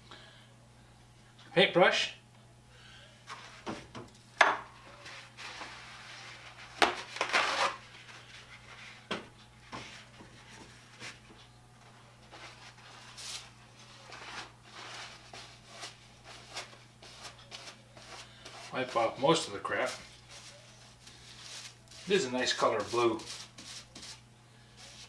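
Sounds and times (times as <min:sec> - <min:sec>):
faint steady hum: 0:00.0 - 0:25.0
paper towels tearing: 0:06.3 - 0:08.0
paper crumpling: 0:12.3 - 0:18.6.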